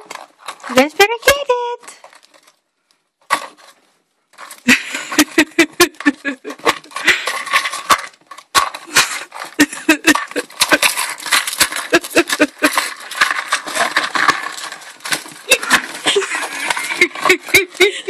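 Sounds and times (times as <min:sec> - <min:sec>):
cardboard rustling and crunching: 0:03.2 - 0:18.0
rats scrabbling in wire cage: 0:06.5 - 0:17.8.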